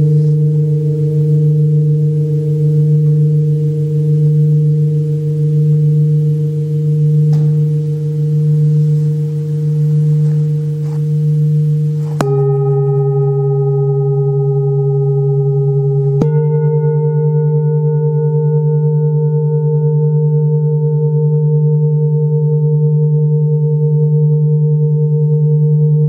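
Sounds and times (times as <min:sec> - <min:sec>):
padded mallet striking bowl: 0:00.0 - 0:19.6
metal singing bowls ringing: 0:00.0 - 0:26.0.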